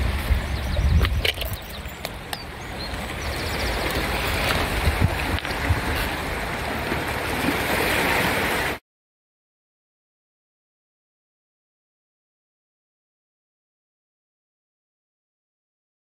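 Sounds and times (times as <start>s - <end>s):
wind buffeting microphone: 0.0s - 8.5s
sea waves washing over stones: 1.0s - 8.8s.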